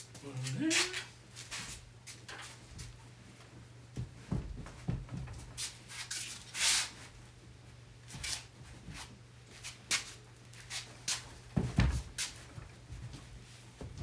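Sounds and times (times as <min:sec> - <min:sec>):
light knocks and thumps: 0:03.9 - 0:05.6, 0:11.5 - 0:14.0.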